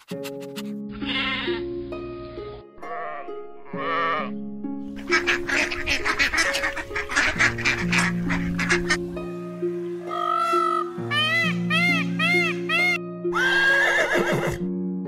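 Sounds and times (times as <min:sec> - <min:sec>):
background music: 0:00.0 - 0:15.0
sheep bleating: 0:00.9 - 0:01.7, 0:02.8 - 0:04.4
ducks quacking: 0:04.9 - 0:09.2, 0:10.0 - 0:13.0.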